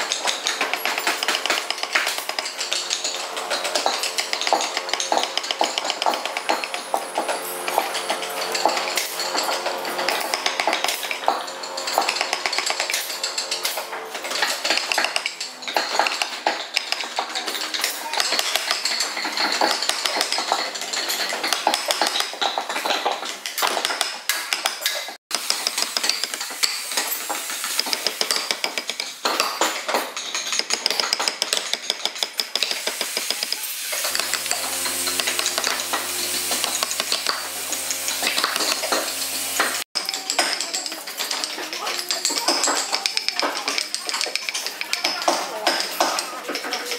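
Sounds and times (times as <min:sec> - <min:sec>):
mallet tapping chisel into wood: 0:00.2 - 0:09.4.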